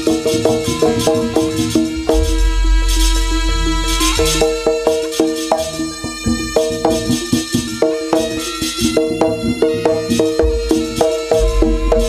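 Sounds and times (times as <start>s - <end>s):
drum strokes: 0.0s - 6.5s, 10.1s - 12.0s
deep low note: 1.9s - 4.9s, 11.4s - 12.0s.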